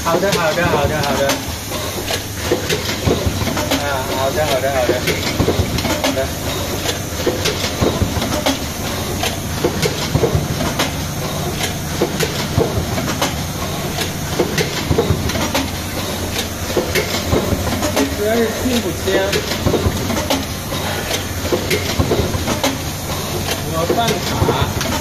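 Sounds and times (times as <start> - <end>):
machine clicks and clacks: 0.0 - 25.0
mechanical hum: 0.0 - 25.0.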